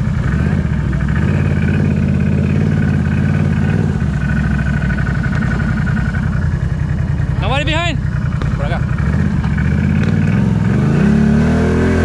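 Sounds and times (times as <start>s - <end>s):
atv engine running: 0.0s - 12.0s.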